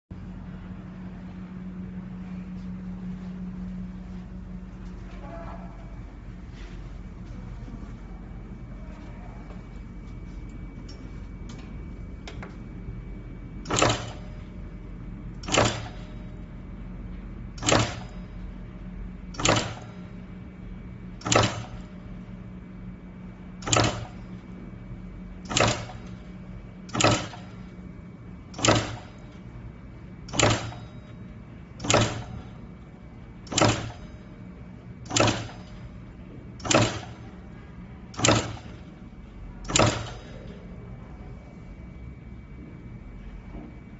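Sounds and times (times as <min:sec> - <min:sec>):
low machine hum: 0:00.1 - 0:43.9
crimping press clunk: 0:13.6 - 0:14.6, 0:15.4 - 0:16.3, 0:17.6 - 0:18.3, 0:19.3 - 0:20.2, 0:21.2 - 0:22.0, 0:23.6 - 0:24.5, 0:25.4 - 0:27.8, 0:28.5 - 0:29.5, 0:30.3 - 0:32.8, 0:33.4 - 0:34.2, 0:35.0 - 0:40.6.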